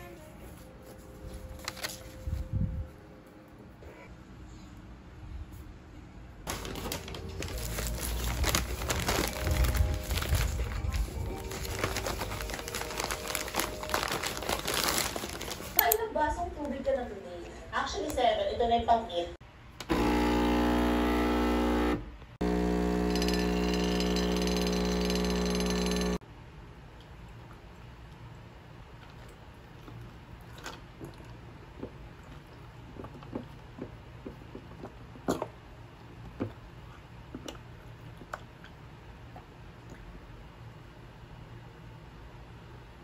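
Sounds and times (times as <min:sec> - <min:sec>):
plastic pouch crinkling: 0:06.5 - 0:15.9
espresso machine pump buzzing: 0:19.8 - 0:26.2.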